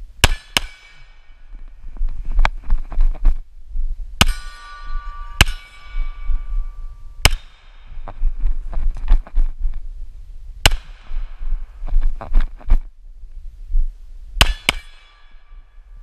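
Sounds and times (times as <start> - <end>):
low rumble: 1.0 - 14.4
steel target ringing: 4.2 - 8.0, 14.4 - 15.8.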